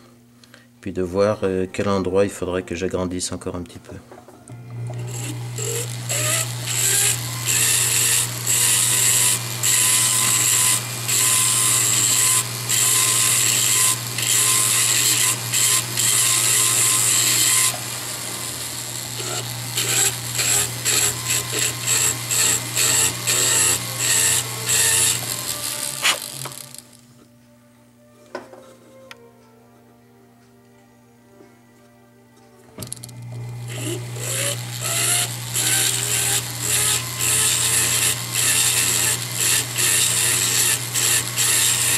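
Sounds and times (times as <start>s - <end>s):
rotary motor humming: 4.6s - 27.0s, 33.2s - 41.9s
bur grinding metal: 5.0s - 26.7s.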